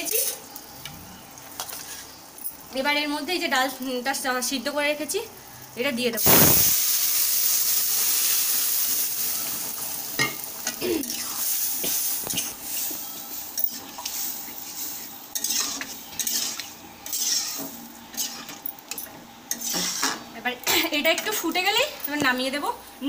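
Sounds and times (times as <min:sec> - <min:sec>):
food sizzling in hot oil: 0:00.0 - 0:00.8, 0:01.4 - 0:21.7
metal spatula scraping pan: 0:15.3 - 0:18.6, 0:19.5 - 0:20.2.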